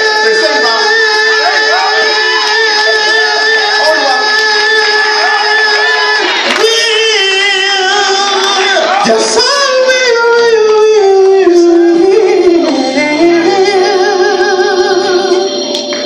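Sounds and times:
men singing gospel: 0:00.0 - 0:16.0
instrumental backing: 0:09.1 - 0:16.0.

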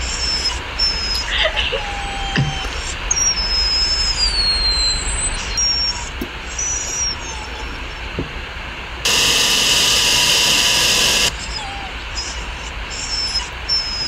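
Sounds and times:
loud harsh jumpscare noise: 0:09.1 - 0:11.3.

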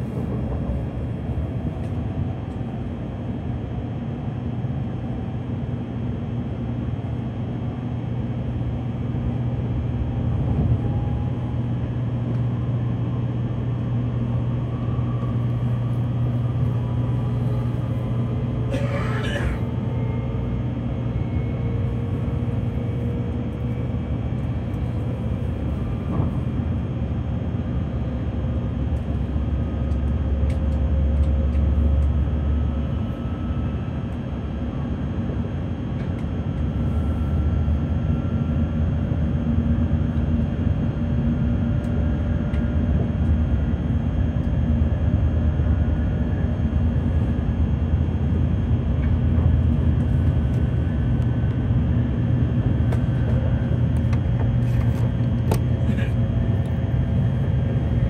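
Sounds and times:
faint train whine: 0:00.0 - 0:58.0
train running rumble: 0:00.0 - 0:58.0.

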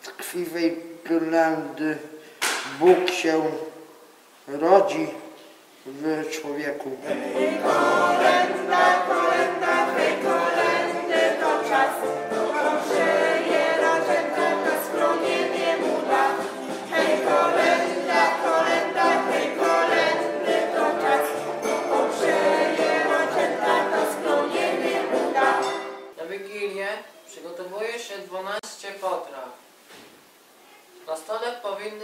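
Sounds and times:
children singing together: 0:07.0 - 0:26.1
musical accompaniment: 0:07.0 - 0:26.2.

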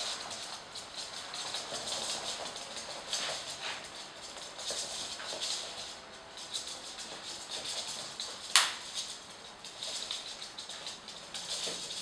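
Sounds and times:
mop swishing across floor: 0:01.8 - 0:04.0.

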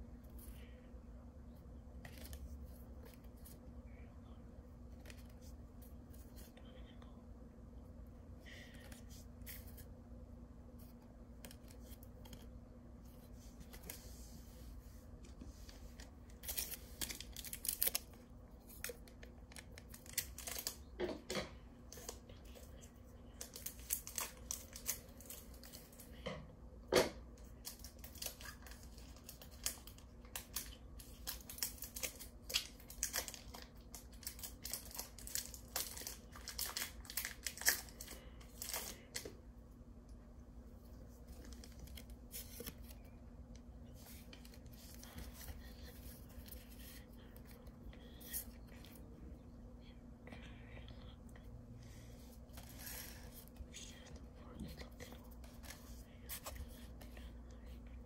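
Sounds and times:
foil wrappers crinkling: 0:16.3 - 0:20.8, 0:27.6 - 0:39.2.

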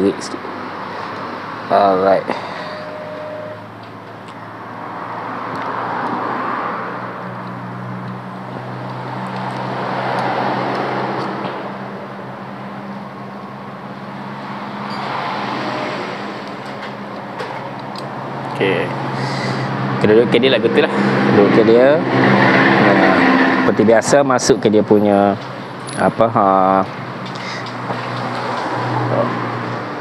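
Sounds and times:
passing road traffic: 0:00.0 - 0:30.0.

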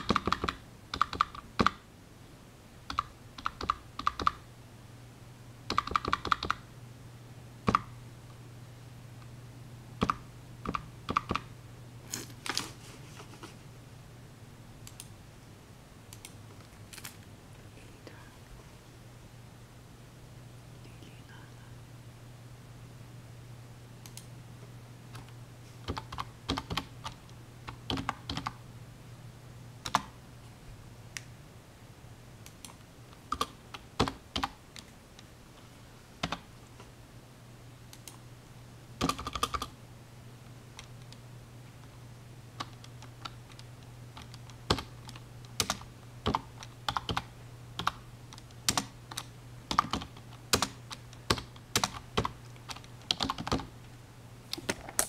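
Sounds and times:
typing on a keyboard: 0:00.0 - 0:01.8, 0:02.9 - 0:04.4, 0:05.7 - 0:06.6, 0:10.0 - 0:11.4, 0:25.9 - 0:28.6, 0:29.9 - 0:30.1, 0:32.5 - 0:34.9, 0:39.0 - 0:39.7, 0:42.6 - 0:53.7
steady low hum: 0:00.0 - 0:55.0.

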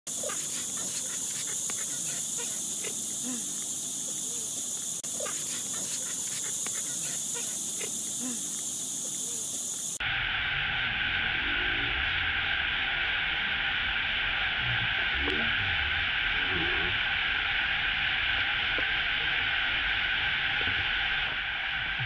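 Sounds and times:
high insect buzzing: 0:00.1 - 0:10.0
squeaky animal calls: 0:00.2 - 0:03.4, 0:04.2 - 0:08.4.

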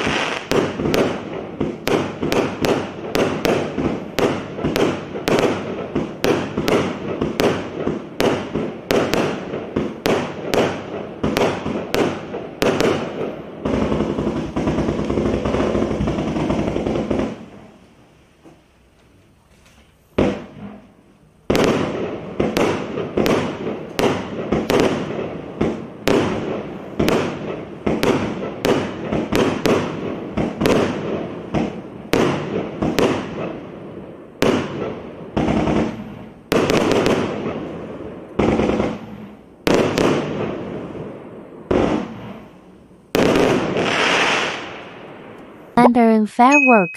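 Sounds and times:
firework launch thumps and bursts: 0:00.0 - 0:17.6, 0:20.1 - 0:20.9, 0:21.5 - 0:33.6.

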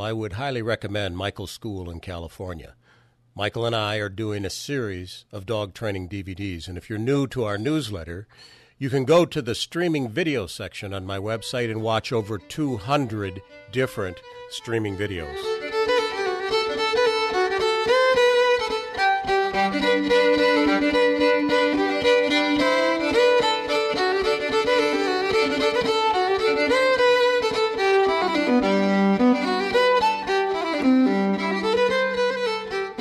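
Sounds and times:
fiddle melody: 0:10.9 - 0:33.0.

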